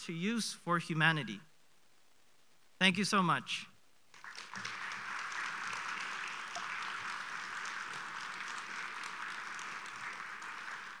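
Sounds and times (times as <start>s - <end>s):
audience applauding: 4.1s - 11.0s.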